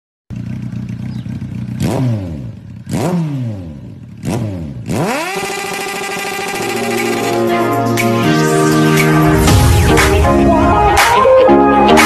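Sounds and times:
motorcycle engine revving: 0.3s - 10.0s
music: 6.6s - 12.0s.

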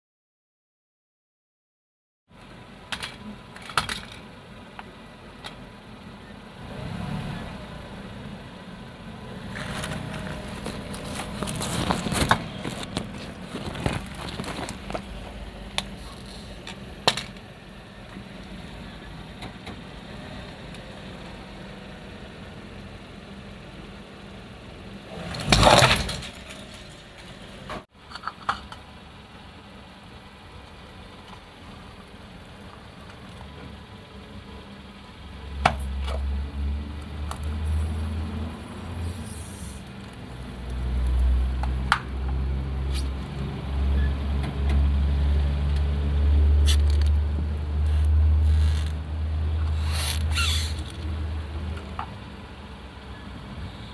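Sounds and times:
car engine rumbling low: 2.3s - 53.9s
loud crunch: 9.5s - 16.6s, 25.1s - 27.7s, 49.7s - 51.1s
plastic cracking and snapping: 9.6s - 15.1s.

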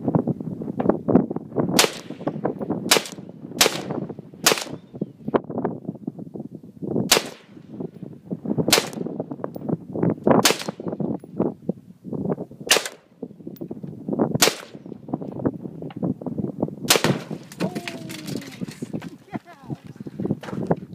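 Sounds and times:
rifle shots cracking: 1.8s - 2.3s, 2.9s - 4.8s, 7.1s - 7.6s, 8.7s - 9.1s, 10.4s - 11.0s, 12.7s - 13.1s, 14.4s - 14.9s, 16.9s - 17.6s.

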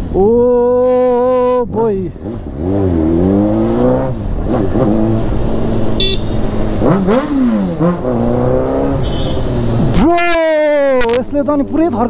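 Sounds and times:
motorcycle engine revving: 2.1s - 10.1s
high beep: 6.0s - 6.4s.

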